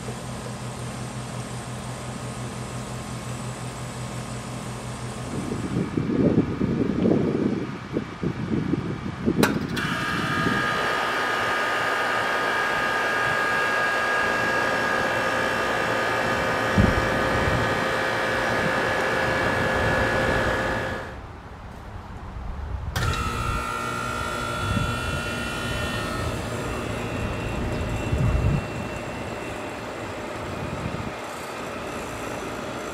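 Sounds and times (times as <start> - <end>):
air conditioner unit humming: 0.0 - 21.7, 22.7 - 32.9
whining tones: 9.4 - 21.3, 23.0 - 32.9.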